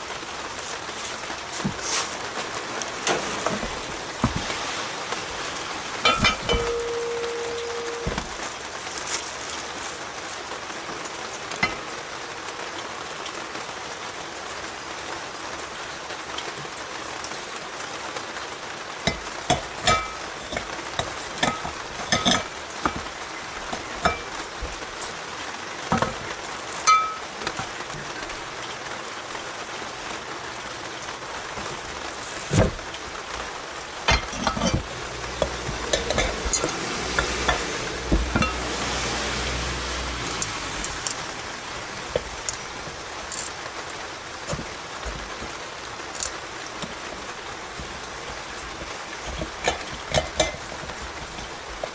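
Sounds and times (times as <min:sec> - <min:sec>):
steady hiss: 0:00.0 - 0:12.5
metal parts clinking: 0:06.0 - 0:08.4, 0:19.1 - 0:25.1, 0:34.1 - 0:38.7, 0:43.3 - 0:43.6.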